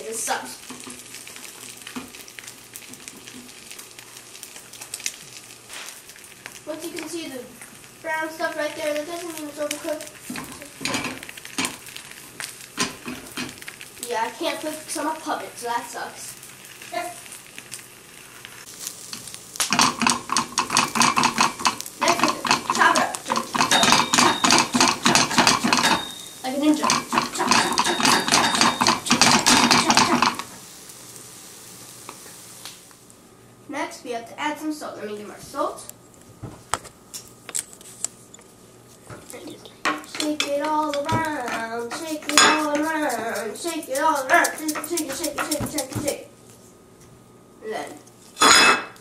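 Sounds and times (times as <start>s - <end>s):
egg sizzling: 0.0s - 47.0s
spatula scraping frying pan: 18.2s - 30.5s, 39.9s - 46.0s
tableware clinking: 22.4s - 30.4s, 48.4s - 49.0s.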